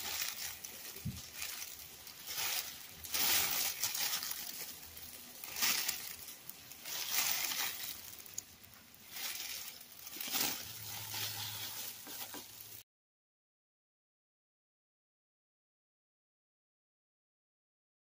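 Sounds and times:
plastic gloves crinkling: 0.0s - 12.8s.

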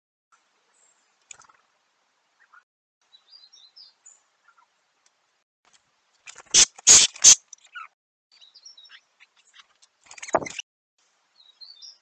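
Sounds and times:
faint small-bird chirps: 2.4s - 4.7s, 6.9s - 10.6s, 11.3s - 12.0s.

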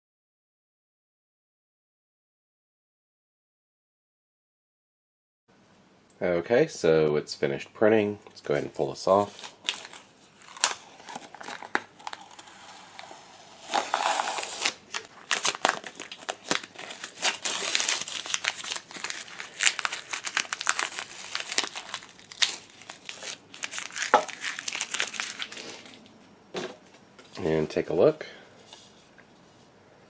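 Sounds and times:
tape peeling and crumpling: 9.2s - 26.0s.

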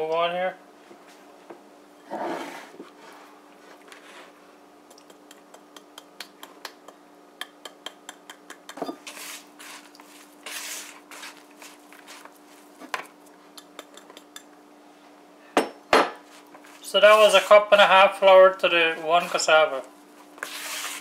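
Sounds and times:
hand rubbing flour scraping: 9.0s - 12.8s, 16.2s - 18.2s, 18.8s - 21.0s.

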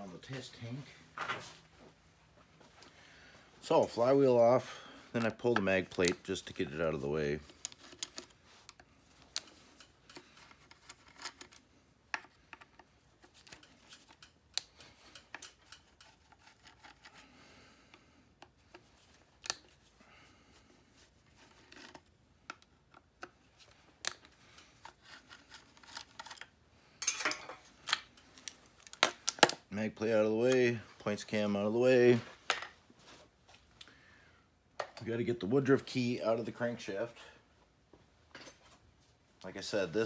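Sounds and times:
screwdriver scraping on metal: 13.4s - 17.1s.

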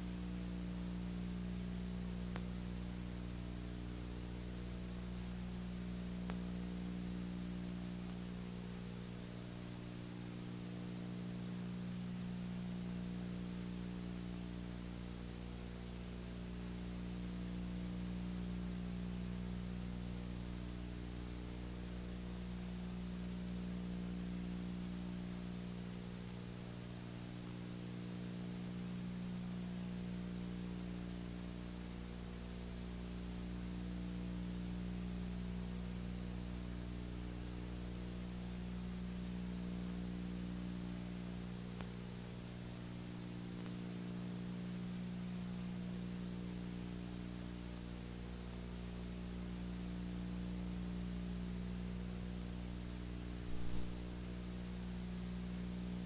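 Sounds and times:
electrical hum: 0.0s - 56.0s
steady hiss: 53.3s - 54.5s.

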